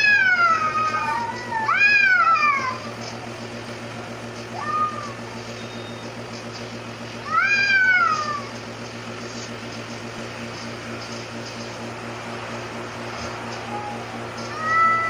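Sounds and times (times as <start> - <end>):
cat yowling: 0.0 - 5.6, 7.2 - 8.6, 13.7 - 15.0
steady low hum: 0.0 - 15.0.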